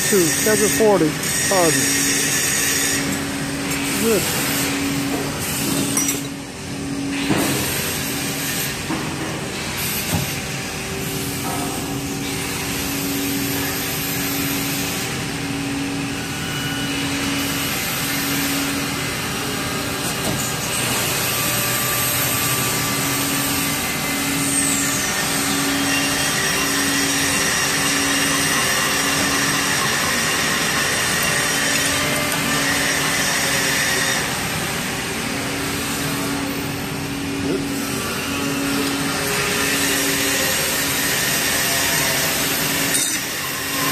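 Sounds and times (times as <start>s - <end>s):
hydraulic press hum and hiss: 0.0s - 43.9s.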